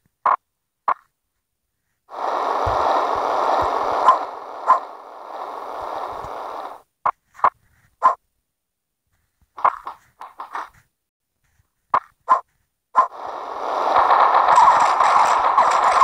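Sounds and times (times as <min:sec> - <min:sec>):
rough noisy sound: 0:02.1 - 0:06.8, 0:13.0 - 0:16.0
dog barking: 0:08.0 - 0:08.2.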